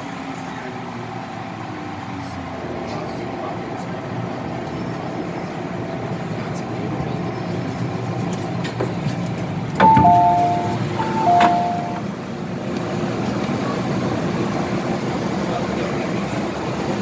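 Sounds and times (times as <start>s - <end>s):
train hum: 0.0s - 17.0s
two-note door chime: 9.8s - 12.0s.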